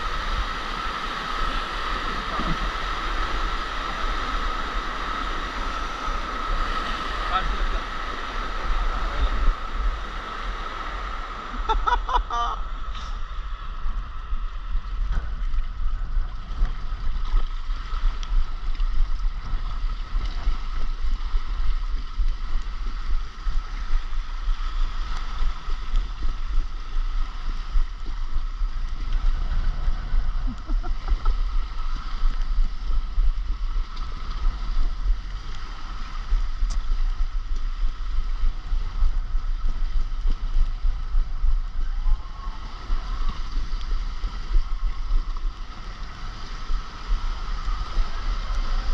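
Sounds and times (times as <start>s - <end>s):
rushing water: 0.0s - 48.9s
wind buffeting microphone: 12.6s - 48.9s.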